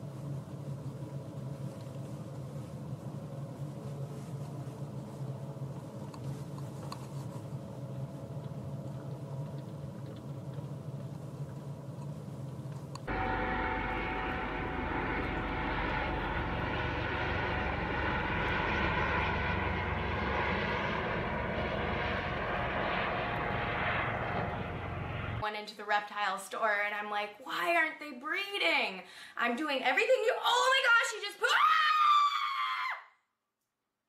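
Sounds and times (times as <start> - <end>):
vehicle engine hum: 0.0 - 25.4
rushing roar: 13.1 - 25.4.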